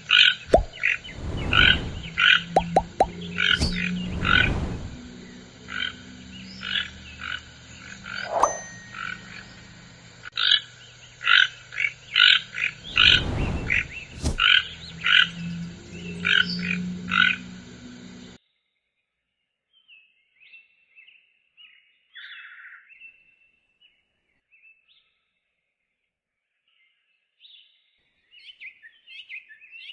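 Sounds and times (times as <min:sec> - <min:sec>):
low rustling thumps: 0:00.5 - 0:05.4, 0:12.8 - 0:14.9.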